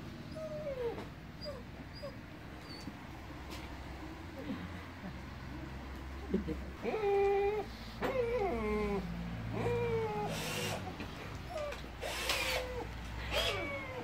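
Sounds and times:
dog whining: 0.2 - 3.0, 6.8 - 14.0.

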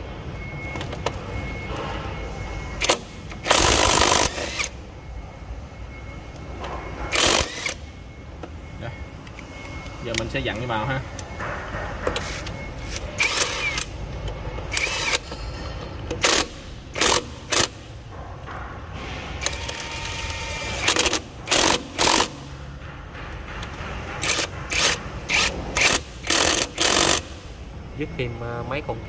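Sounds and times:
impact wrench hammering: 2.8 - 4.8, 14.7 - 27.5.

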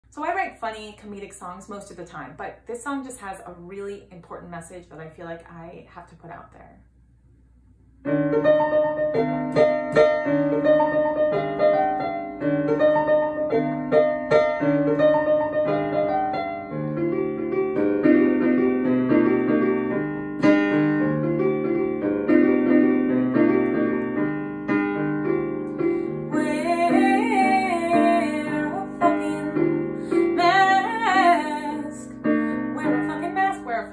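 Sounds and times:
piano chords: 8.0 - 33.9
woman singing: 26.3 - 33.9.

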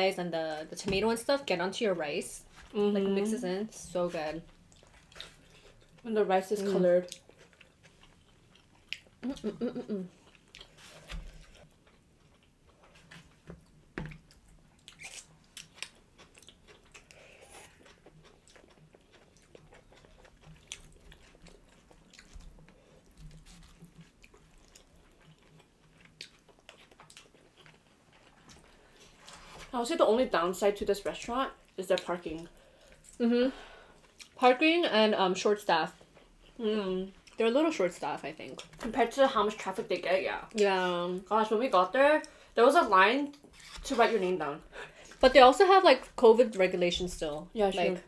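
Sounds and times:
people chewing soft food: 3.9 - 29.7, 31.0 - 34.4
person humming: 9.2 - 10.1.

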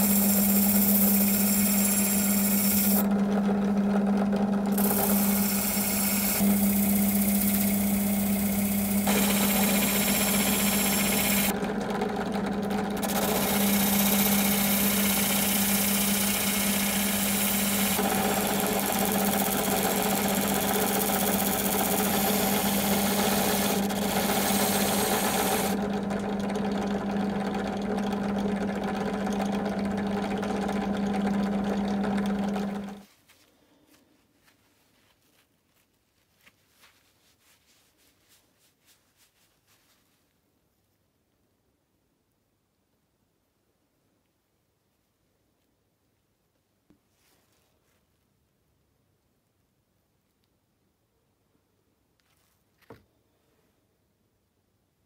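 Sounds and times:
drill press motor humming: 0.0 - 33.0
blade scraping abrasive disc: 13.0 - 19.2.

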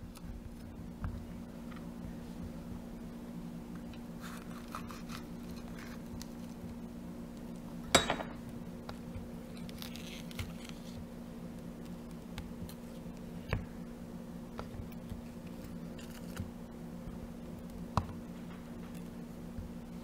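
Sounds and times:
steady low hum: 0.0 - 20.0
knife cutting pepper: 4.2 - 6.4.

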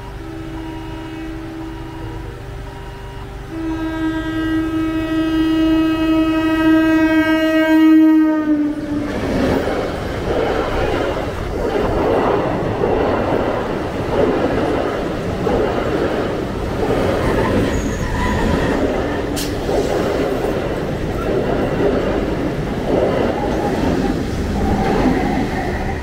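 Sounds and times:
train horn: 0.0 - 9.3
train coaches rumbling past: 0.0 - 26.0.

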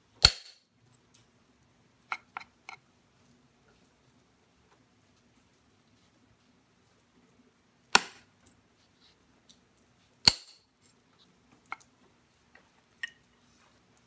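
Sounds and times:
wooden billet striking metal punch: 0.2 - 0.6, 8.0 - 8.2, 10.3 - 10.6.

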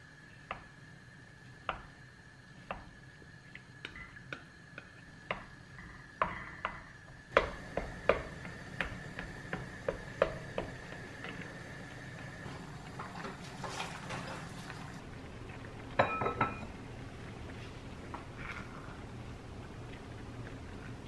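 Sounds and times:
plastic paddle tapping a pot: 6.2 - 11.4
water bubbling: 14.4 - 16.0.

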